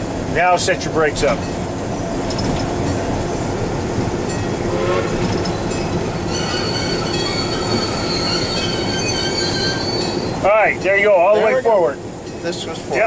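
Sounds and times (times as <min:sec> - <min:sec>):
locomotive engine running: 0:00.0 - 0:13.0
high brake squeal: 0:04.7 - 0:10.5.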